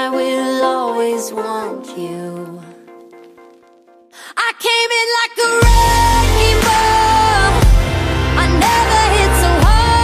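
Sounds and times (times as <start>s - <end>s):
pop music with heavy bass: 4.4s - 10.0s.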